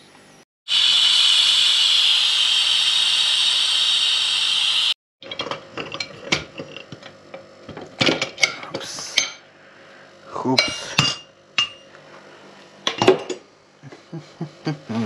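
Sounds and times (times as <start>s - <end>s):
steam hissing from pressure valve: 0.7s - 5.0s.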